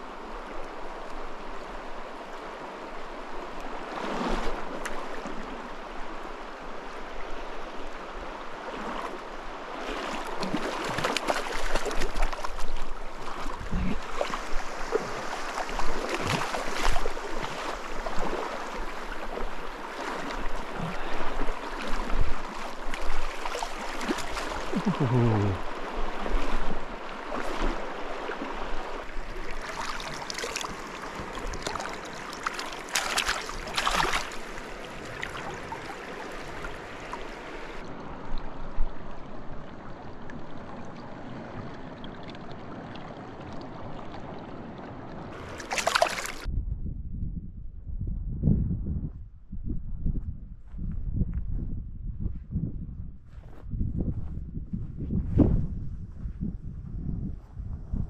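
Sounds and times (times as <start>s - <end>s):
creek water running: 3.4s - 46.5s
fish splashing in water: 10.2s - 12.8s, 29.3s - 37.5s, 45.4s - 46.5s.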